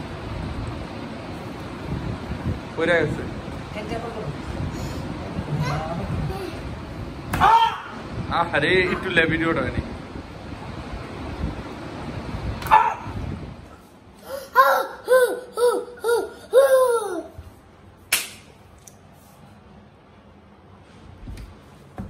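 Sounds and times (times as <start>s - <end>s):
child laughing: 14.2s - 17.4s.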